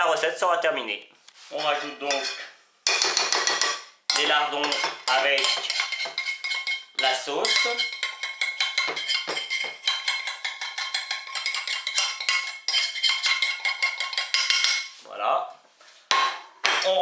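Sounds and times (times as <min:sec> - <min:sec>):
metal utensil scraping a frying pan: 0:01.5 - 0:15.0.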